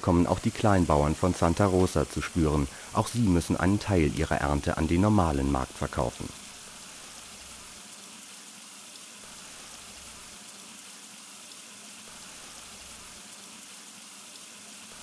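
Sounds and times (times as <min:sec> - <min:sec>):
water hissing through channels: 0:00.0 - 0:15.0.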